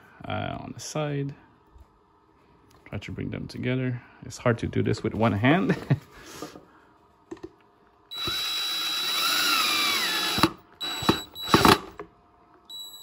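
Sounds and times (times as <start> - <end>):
cordless drill whirring: 8.1 - 12.0.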